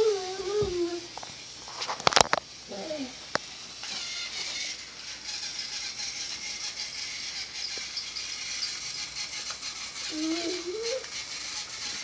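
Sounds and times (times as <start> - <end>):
toy train motor whirring: 0.0 - 12.0
light rapid rattle: 3.4 - 12.0.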